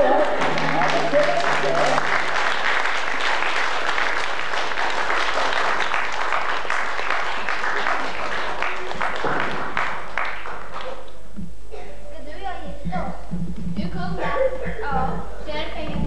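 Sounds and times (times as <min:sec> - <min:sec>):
audience applauding: 0:00.0 - 0:11.2
tape hiss: 0:00.0 - 0:16.0.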